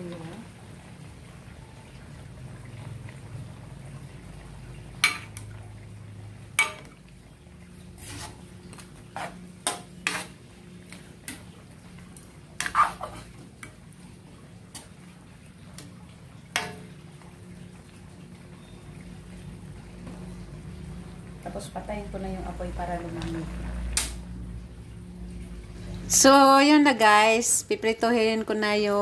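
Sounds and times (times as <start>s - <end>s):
low steady hum: 0.0s - 29.0s
metal ladle scraping wok: 8.0s - 10.4s, 12.6s - 13.4s.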